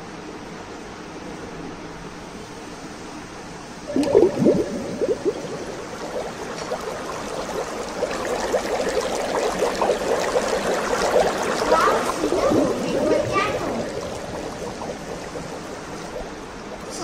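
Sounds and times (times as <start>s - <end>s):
mixture fizzing and crackling: 3.8s - 17.0s
liquid gurgling from bottle: 3.9s - 17.0s.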